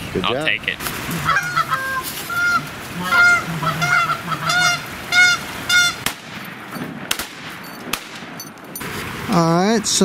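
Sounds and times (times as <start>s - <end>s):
goose honking: 1.0s - 6.1s.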